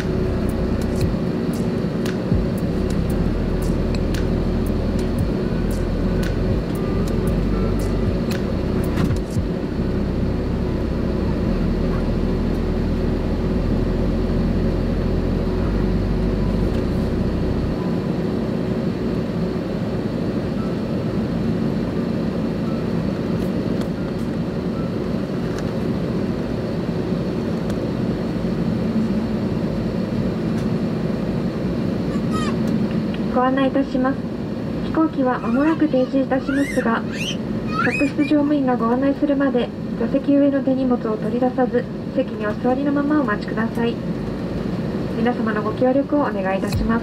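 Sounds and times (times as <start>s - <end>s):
deep rumble: 0.0s - 18.7s, 42.3s - 47.0s
airplane cabin noise: 0.0s - 47.0s.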